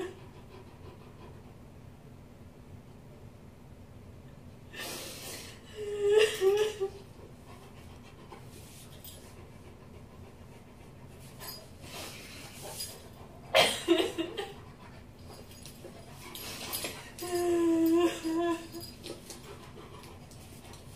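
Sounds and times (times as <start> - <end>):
quiet breathing and snuffling: 7.0 - 13.6.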